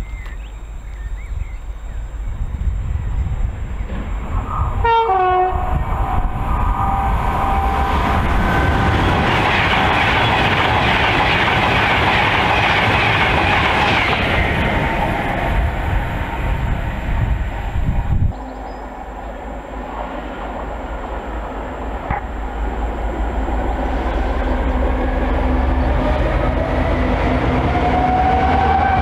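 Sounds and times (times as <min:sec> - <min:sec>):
electric train passing at speed: 0:00.6 - 0:29.0
train horn: 0:04.8 - 0:09.1, 0:25.0 - 0:29.0.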